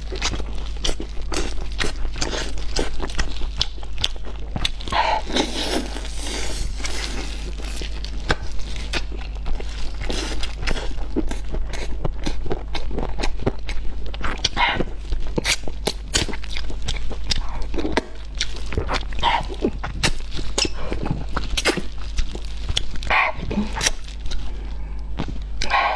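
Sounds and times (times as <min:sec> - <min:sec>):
steady low hum: 0:00.0 - 0:25.9
wet chewing and lip smacks: 0:06.7 - 0:24.5.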